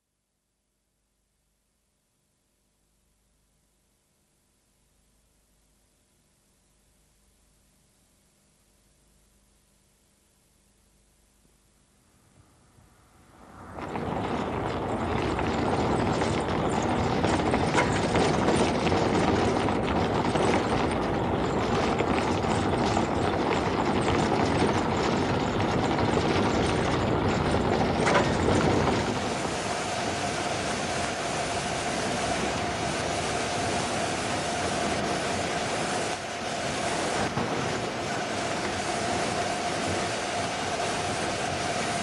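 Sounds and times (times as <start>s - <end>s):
steady hum: 2.5s - 42.0s
tyres rumbling over cobbles: 13.4s - 36.2s.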